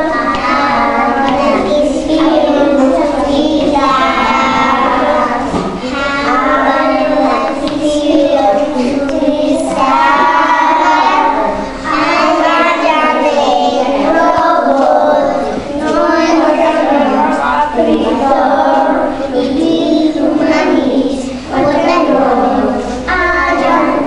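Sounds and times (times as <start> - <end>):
children singing: 0.0 - 24.0.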